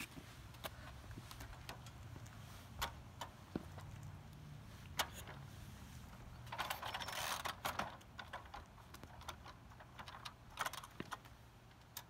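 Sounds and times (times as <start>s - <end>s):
motorcycle kickstart clicks and clatter: 6.4s - 12.0s.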